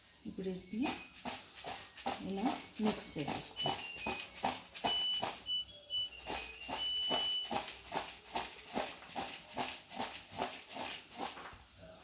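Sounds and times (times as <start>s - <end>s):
food tossed in a plastic bowl: 0.4s - 11.8s.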